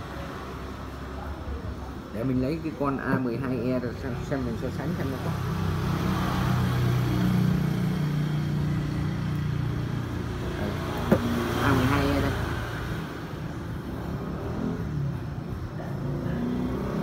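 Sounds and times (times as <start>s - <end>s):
vehicle engine passing: 3.8s - 17.0s.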